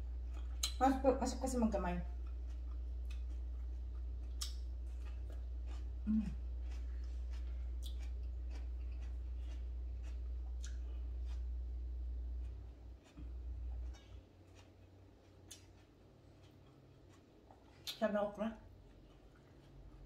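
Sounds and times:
steady low hum: 0.0s - 20.0s
wet chewing clicks: 0.2s - 0.8s, 2.2s - 5.9s, 6.6s - 11.5s, 12.4s - 18.0s, 18.7s - 20.0s
person humming: 6.0s - 6.4s.

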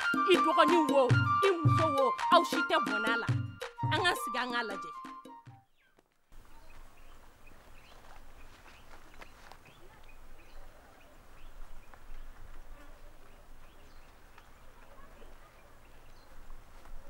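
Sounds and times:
bird chirps: 5.5s - 16.6s.

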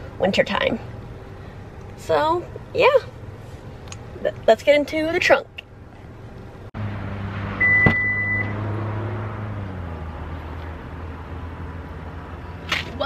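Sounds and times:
high beep: 7.6s - 8.6s.

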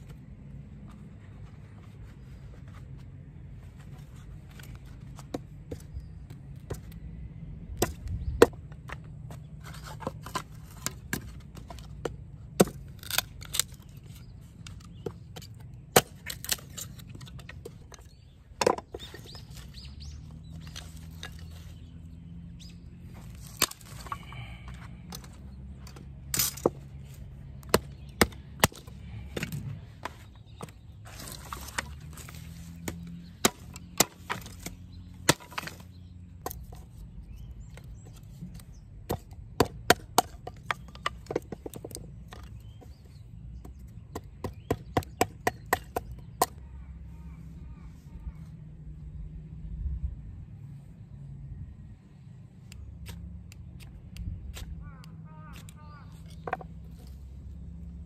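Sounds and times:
hatchet splitting wood: 9.9s - 13.9s, 14.6s - 18.0s, 23.4s - 26.9s, 27.5s - 36.8s, 37.8s - 42.7s, 43.6s - 46.6s.

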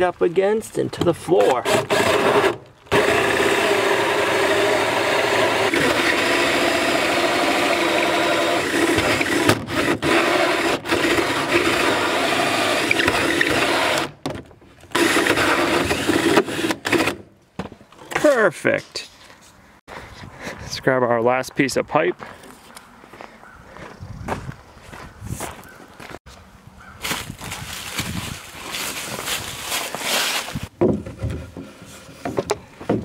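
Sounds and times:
cordless drill cutting wood: 1.4s - 14.2s, 14.9s - 17.2s.

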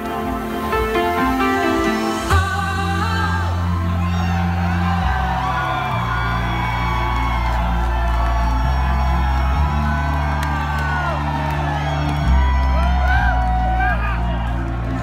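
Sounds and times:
synth bass notes: 0.0s - 15.0s
man singing: 2.3s - 4.1s.

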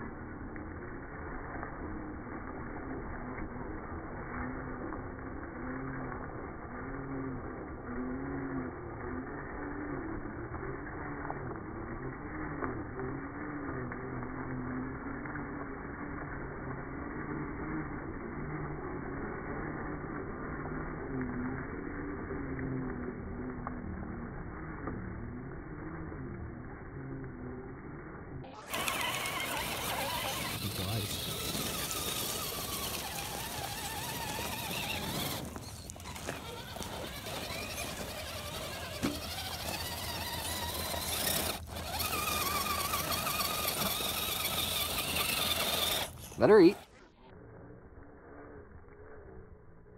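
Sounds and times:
toy car motor whining: 1.2s - 26.3s, 27.0s - 47.3s
electric motor whining: 28.1s - 47.0s
tyres scraping on rocky dirt: 28.6s - 47.0s.

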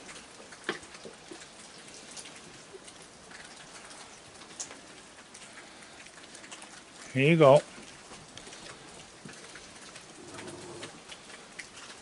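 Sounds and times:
light rain pattering and dripping: 0.0s - 12.0s.

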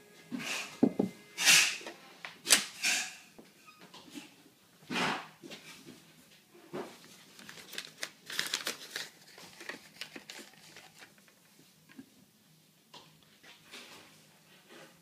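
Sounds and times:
paper coffee filter crinkling: 6.9s - 12.1s.

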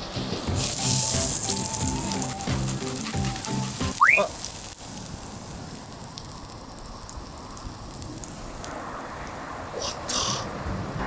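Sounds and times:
background music: 0.0s - 4.1s
meat and onions sizzling: 0.0s - 8.7s.

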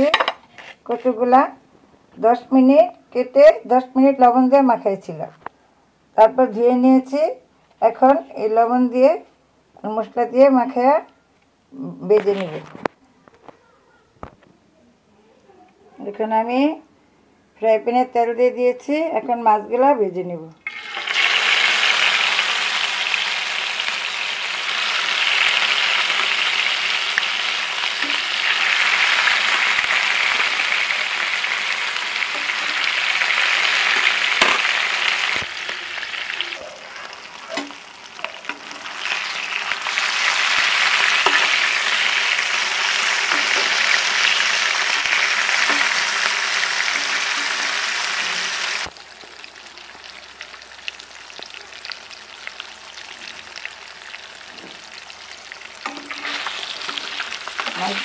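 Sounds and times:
fish sizzling in hot oil: 20.6s - 58.0s.

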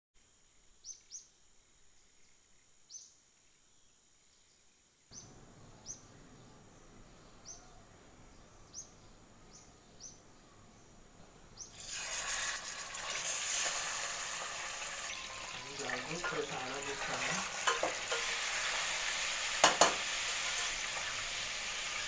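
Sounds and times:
background hiss: 0.2s - 22.0s
faint high bird chirps: 0.5s - 11.8s, 14.9s - 17.4s.

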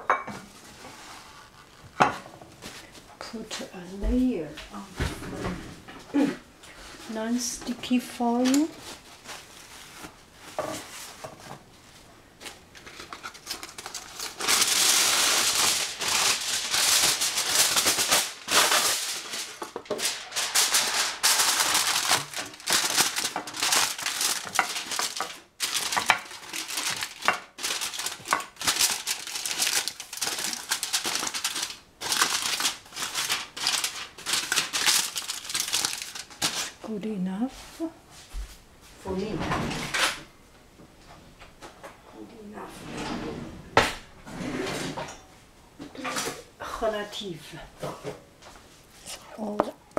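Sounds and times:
aluminium foil crinkling: 7.1s - 11.3s, 11.9s - 37.0s.

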